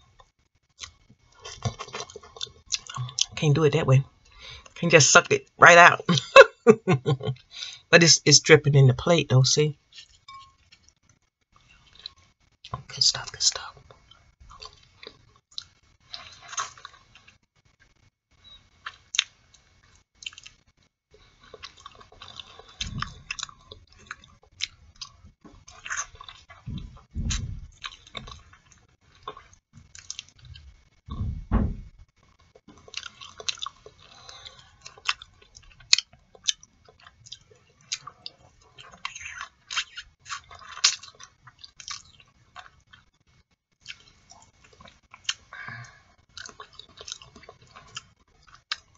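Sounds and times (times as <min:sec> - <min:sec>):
chewing artichoke leaves: 0:21.4 - 0:30.6, 0:32.7 - 0:43.1, 0:46.3 - 0:48.9.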